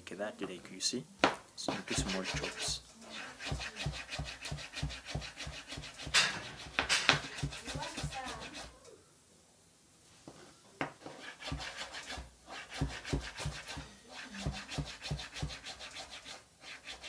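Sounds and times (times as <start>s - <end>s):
knife cutting strokes: 1.6s - 8.7s, 11.1s - 17.0s.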